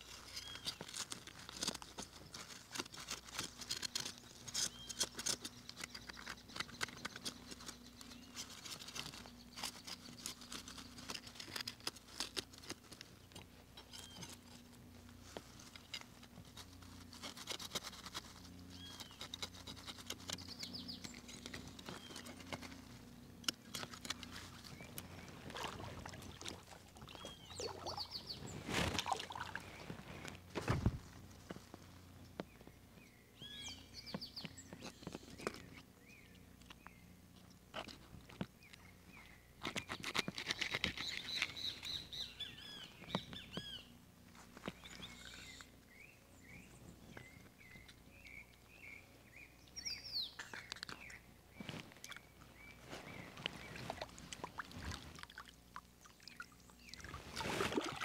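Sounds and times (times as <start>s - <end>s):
knife scraping fish scales: 39.6s - 41.9s.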